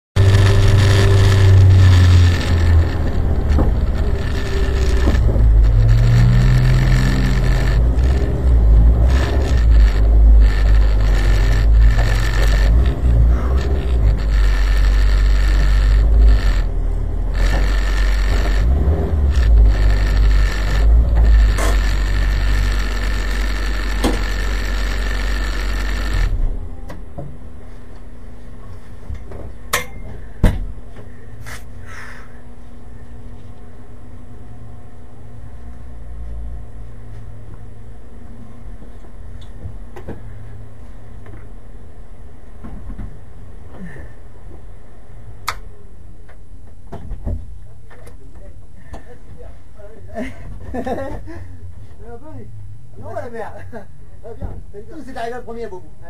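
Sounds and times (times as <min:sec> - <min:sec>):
steady low rumble: 0:00.2 - 0:26.9
vehicle engine idling: 0:00.2 - 0:26.9
sharp click: 0:45.4 - 0:45.7.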